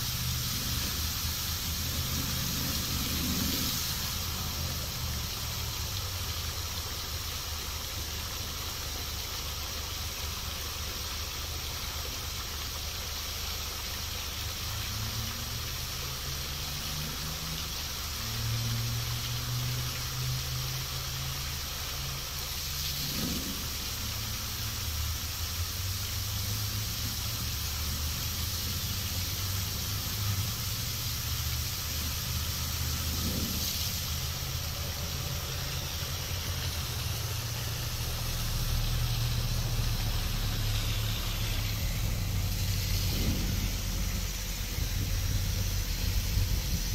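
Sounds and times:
fountain water splashing: 0.0 - 46.9
low hum: 31.9 - 46.9.

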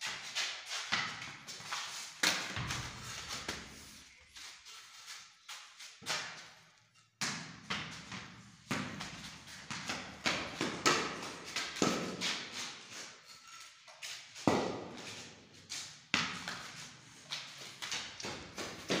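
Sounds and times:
ball bouncing on concrete: 0.9 - 3.8, 7.2 - 12.6, 14.4 - 15.3, 16.1 - 19.0.

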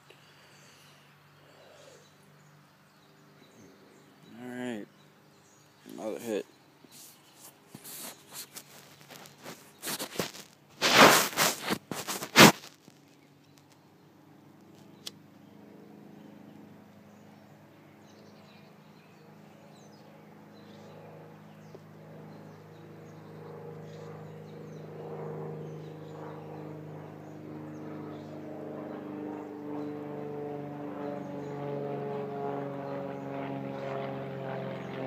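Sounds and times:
distant engine drone: 0.0 - 35.0
rustling close to microphone: 5.9 - 13.8.

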